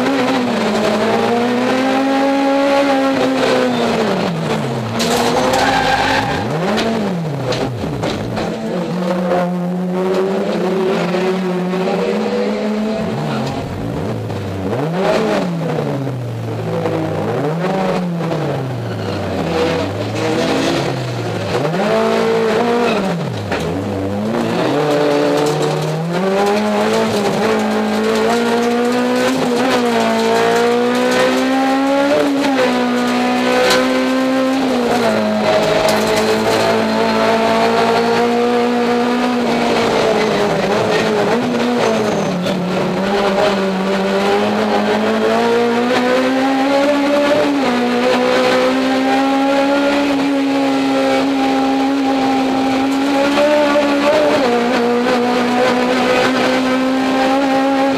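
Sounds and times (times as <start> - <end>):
race car engine shifting gears: 0.0 - 57.9.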